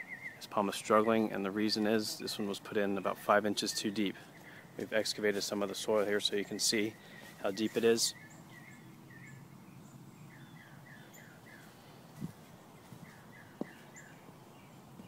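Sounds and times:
faint bird chirps: 0.0 - 1.4.

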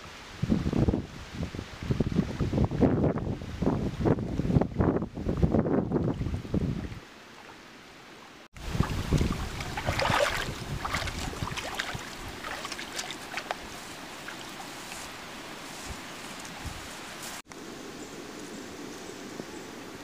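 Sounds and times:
water sloshing and trickling: 5.9 - 17.4
footsteps splashing in water: 8.6 - 15.2.

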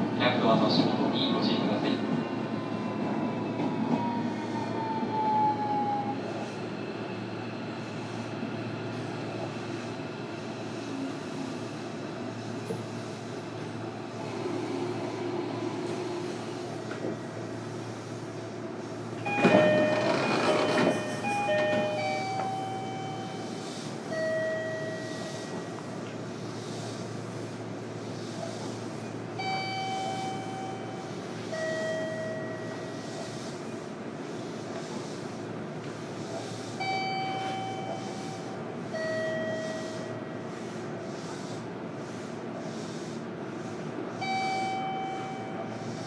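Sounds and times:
train inverter whine: 0.0 - 46.0
train rolling noise: 0.0 - 46.0
wheels rattling on rails: 19.1 - 27.7.

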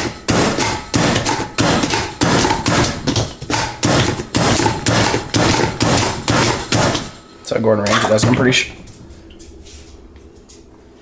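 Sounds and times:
food chopper chopping onion: 0.0 - 7.1.

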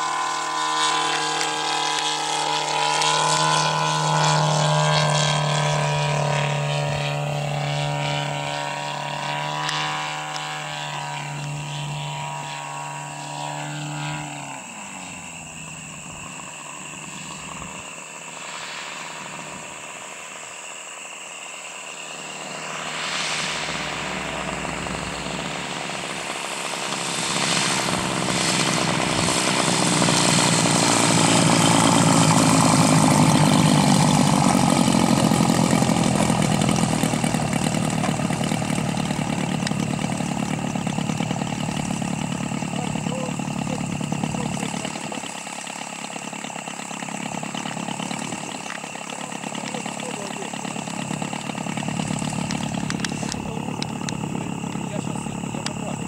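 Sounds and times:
model airplane engine: 0.0 - 56.0.

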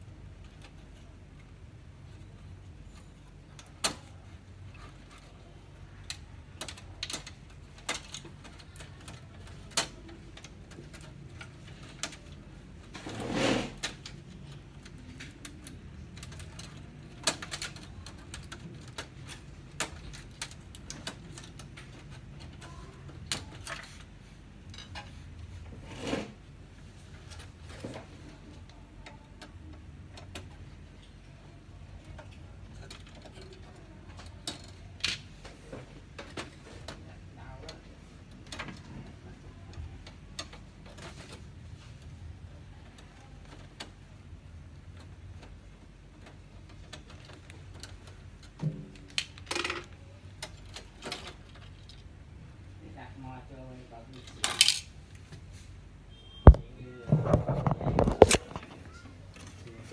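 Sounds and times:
loud scrape: 12.9 - 13.9.

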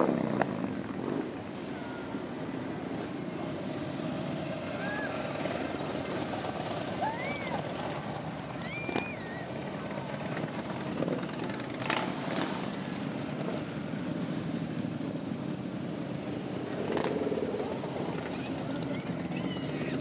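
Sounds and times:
motorcycles riding past: 0.0 - 20.0.

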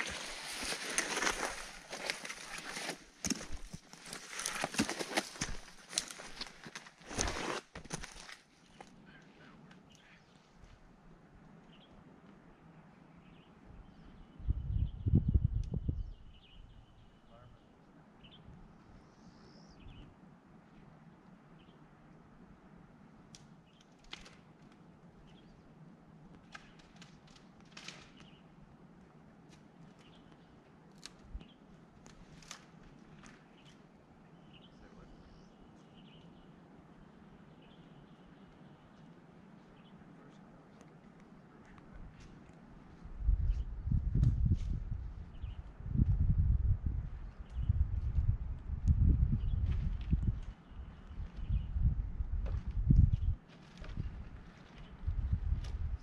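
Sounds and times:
faint bird chirps: 13.0 - 20.1
wind buffeting microphone: 13.8 - 16.7, 43.0 - 56.0.

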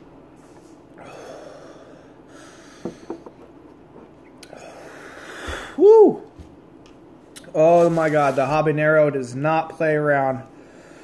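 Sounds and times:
long hissing breath: 0.4 - 3.3, 4.5 - 5.8
man breathing hard: 1.0 - 3.3, 4.4 - 6.0, 10.6 - 11.0.

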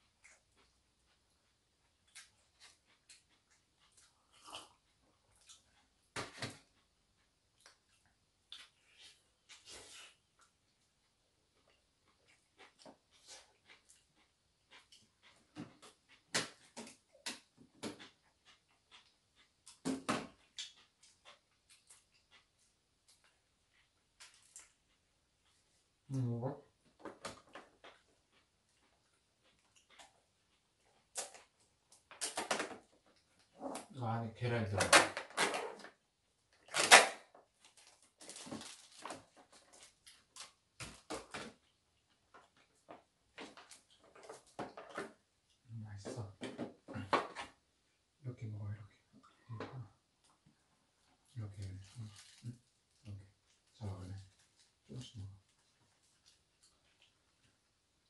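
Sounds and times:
plastic bag crinkling: 37.6 - 40.4.

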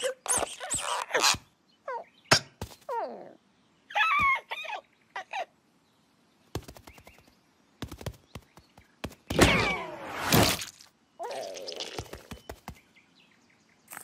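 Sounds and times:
cartoon bird squawking: 0.0 - 2.0.

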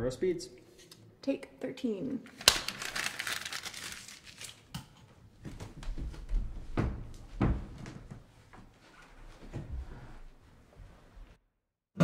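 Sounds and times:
paper being crumpled: 2.3 - 4.7
soft knocks and thumps: 5.5 - 8.7.

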